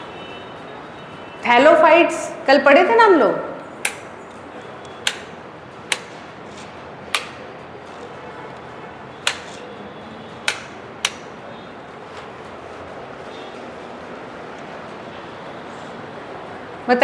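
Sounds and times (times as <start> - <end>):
computer mouse clicking: 3.8 - 5.3, 8.5 - 9.7, 10.4 - 11.3.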